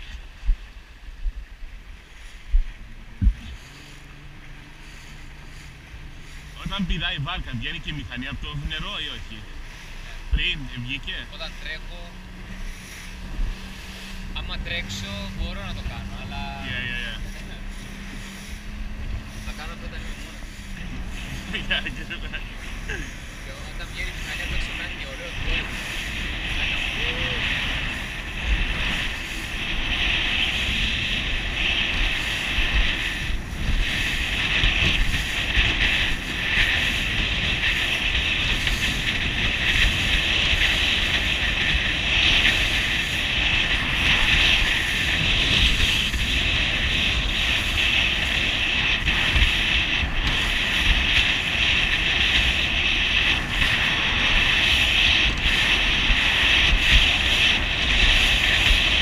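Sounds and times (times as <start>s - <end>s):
outboard engine droning: 0.0s - 59.0s
wind buffeting microphone: 0.0s - 59.0s
water slapping at hull: 17.0s - 59.0s.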